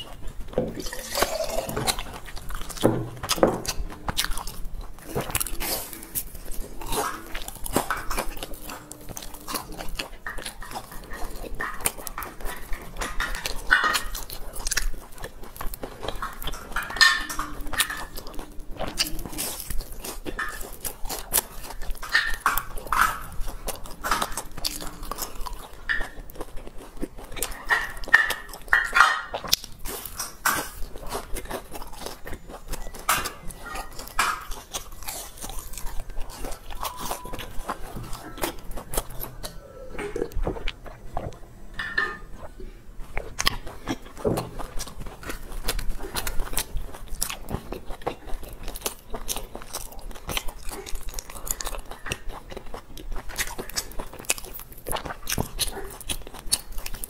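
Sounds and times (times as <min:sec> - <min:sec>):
crunchy chewing: 0:00.0 - 0:57.0
mouth sounds: 0:36.7 - 0:44.5.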